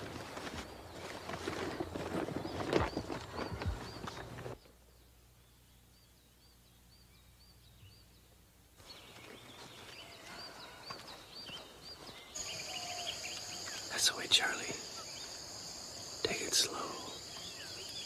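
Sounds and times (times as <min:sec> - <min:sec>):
background hiss: 0:00.0 - 0:18.0
small bird chirping: 0:01.8 - 0:18.0
high insect buzz: 0:12.4 - 0:18.0.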